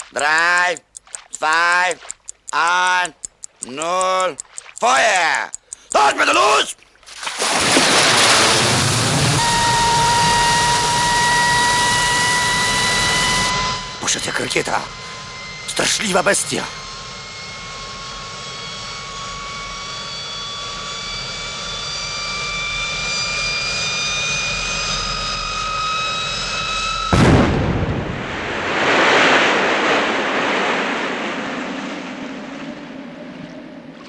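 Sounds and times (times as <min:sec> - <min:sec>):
device whining: 0:00.0 - 0:06.6, 0:08.2 - 0:27.4
loud explosion on water: 0:27.1 - 0:32.2.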